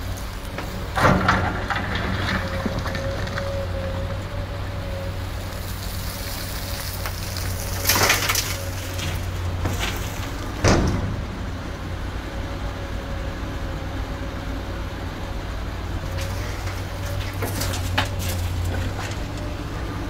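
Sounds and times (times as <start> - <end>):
excavator diesel engine: 0.0 - 20.0
loud clatter: 0.5 - 3.6, 16.1 - 19.6.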